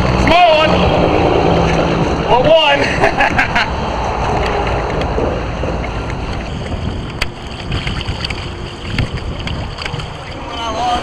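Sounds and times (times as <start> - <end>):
wind buffeting microphone: 0.0 - 11.0
water lapping against hull: 5.3 - 10.8.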